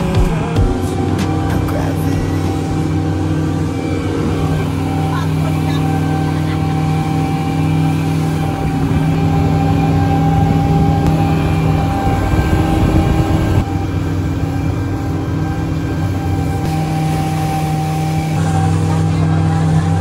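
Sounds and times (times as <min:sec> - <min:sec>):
speedboat engine droning: 0:00.0 - 0:20.0
water rushing along hull: 0:00.0 - 0:20.0.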